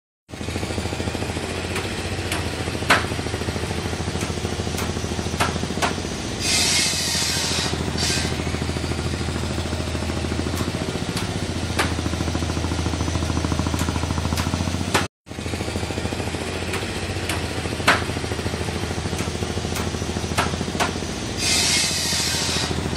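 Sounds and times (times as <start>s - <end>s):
boat engine thudding: 0.8s - 6.4s, 7.7s - 15.1s, 16.5s - 21.4s
rushing hiss: 21.4s - 22.7s.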